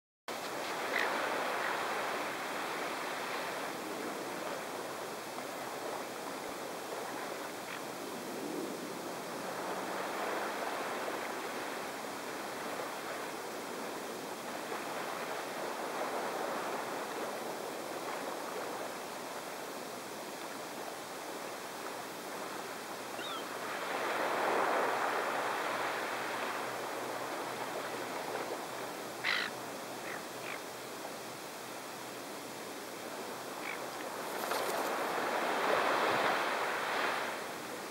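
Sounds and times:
small waves washing on shore: 0:00.3 - 0:37.9
gull call: 0:29.2 - 0:30.6.

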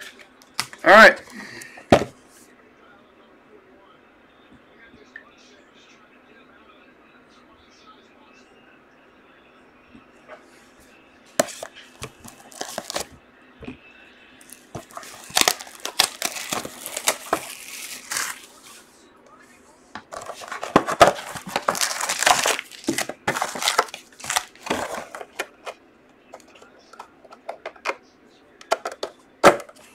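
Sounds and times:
plastic shrink-wrap crinkling and tearing: 0:12.2 - 0:13.1, 0:14.4 - 0:18.8, 0:20.1 - 0:25.3.

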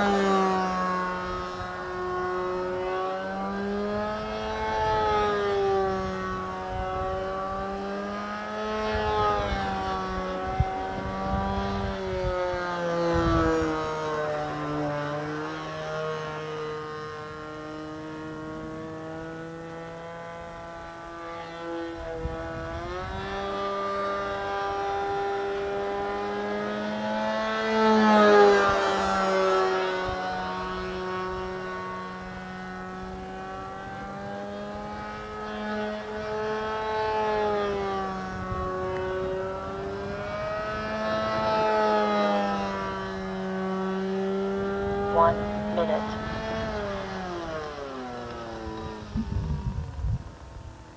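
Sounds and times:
model plane engine in flight: 0:00.0 - 0:50.9.

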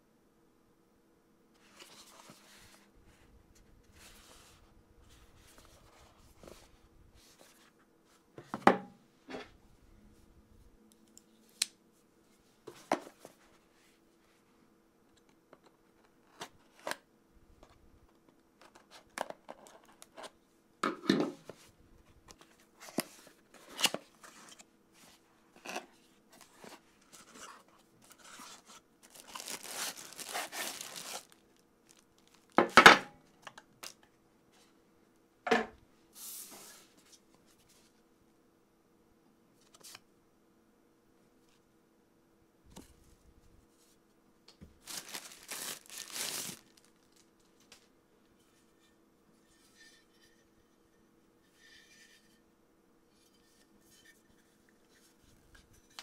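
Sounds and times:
packaging rustling: 0:26.4 - 0:32.6, 0:44.7 - 0:47.8.

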